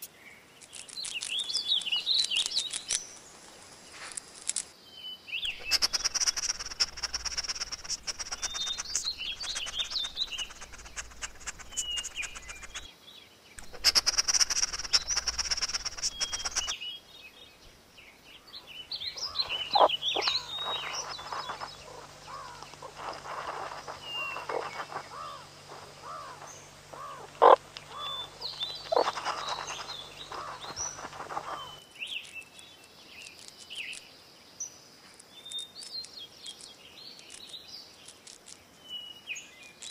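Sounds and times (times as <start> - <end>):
crackly outdoor rustling: 0.0 - 39.9
small birds chirping: 0.0 - 39.9
meerkats chirping: 5.4 - 12.9, 13.6 - 16.8, 18.8 - 31.8.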